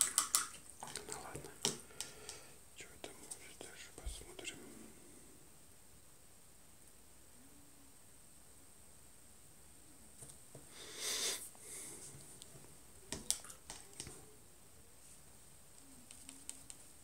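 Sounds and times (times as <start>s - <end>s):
paintbrush clicking against cup: 0.0s - 0.5s, 16.0s - 16.9s
person sniffing: 10.7s - 12.1s.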